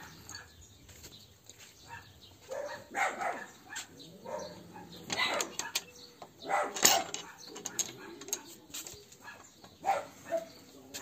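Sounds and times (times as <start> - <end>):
dog barking: 1.9 - 8.3, 9.2 - 10.6.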